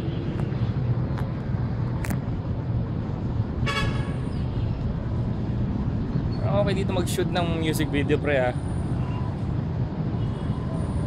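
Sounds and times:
traffic rumble: 0:00.0 - 0:11.0
vehicle horn tooting: 0:03.7 - 0:04.2.

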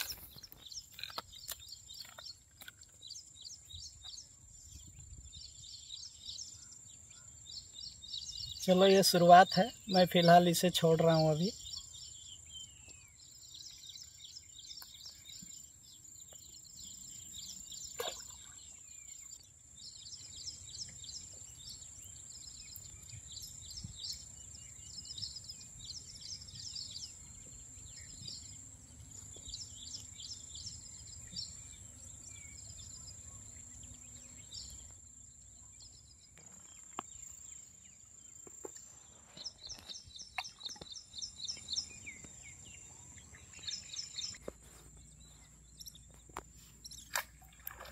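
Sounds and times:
birds chirping in trills: 0:00.0 - 0:47.9
low rumble of wind: 0:03.4 - 0:06.2.

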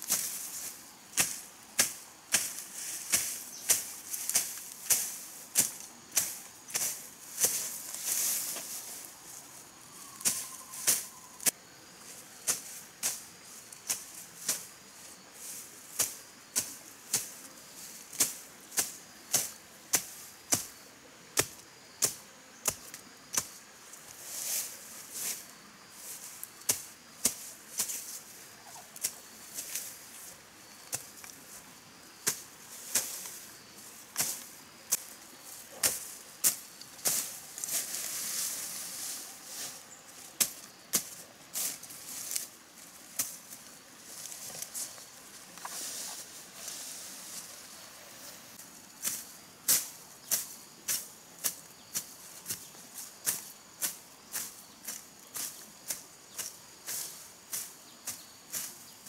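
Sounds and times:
leaves rustling: 0:00.0 - 0:59.0
machete chopping undergrowth: 0:01.1 - 0:08.8, 0:18.1 - 0:20.8, 0:21.4 - 0:23.6, 0:26.7 - 0:28.1, 0:30.8 - 0:31.3, 0:34.1 - 0:35.2, 0:35.8 - 0:38.0, 0:40.4 - 0:42.5.

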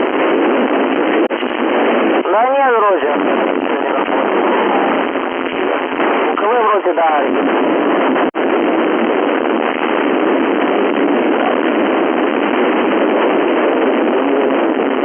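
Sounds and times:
radio static hiss: 0:00.0 - 0:08.3.

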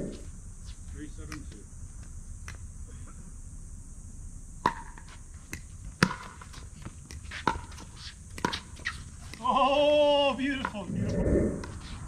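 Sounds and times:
paddles striking pickleball: 0:01.3 - 0:01.6, 0:04.6 - 0:09.8, 0:10.4 - 0:10.8.

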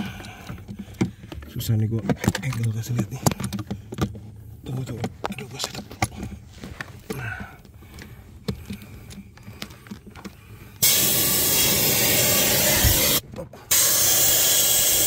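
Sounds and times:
faint clicks and handling noise: 0:00.0 - 0:10.8
air spray gun hissing: 0:10.8 - 0:15.0.

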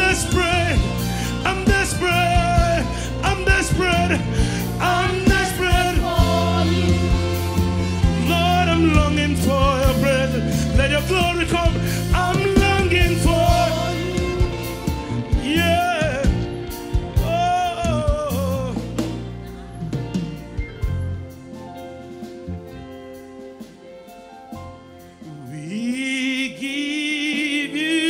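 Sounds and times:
steady bass line: 0:00.0 - 0:23.2
keyboards: 0:00.0 - 0:28.0.

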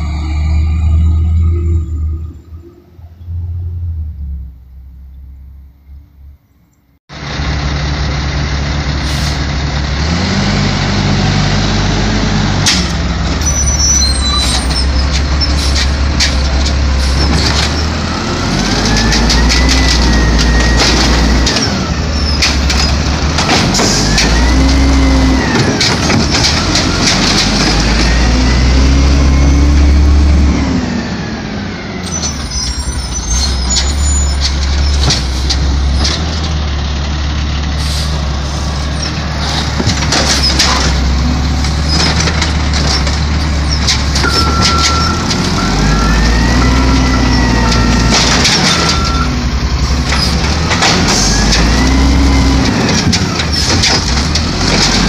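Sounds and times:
garbage truck diesel engine revving: 0:07.1 - 0:55.0
knocks and clatter of carts: 0:12.5 - 0:28.8, 0:33.3 - 0:37.4, 0:38.1 - 0:55.0.

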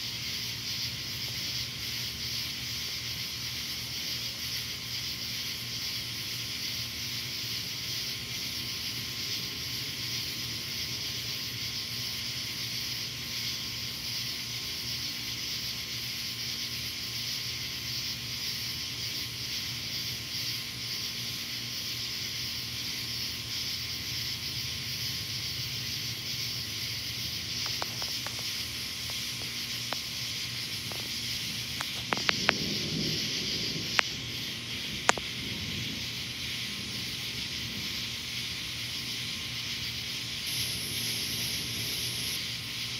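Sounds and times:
night insects chorus: 0:00.0 - 0:42.9
faint ticks: 0:27.6 - 0:30.1, 0:30.8 - 0:33.0, 0:33.9 - 0:34.2, 0:35.0 - 0:35.6.

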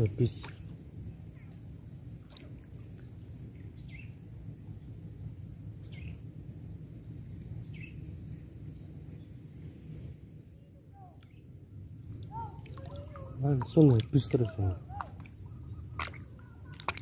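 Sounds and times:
low steady rumble: 0:00.0 - 0:17.0
bird chirping: 0:03.0 - 0:04.2, 0:05.8 - 0:06.2, 0:07.6 - 0:08.0.

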